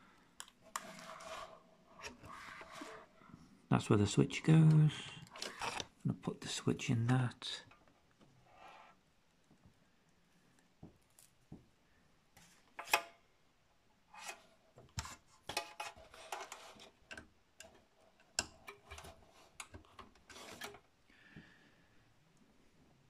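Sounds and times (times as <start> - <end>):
plastic and cable scraping: 0.6 - 3.2, 4.6 - 6.0, 14.2 - 17.0, 18.7 - 20.9.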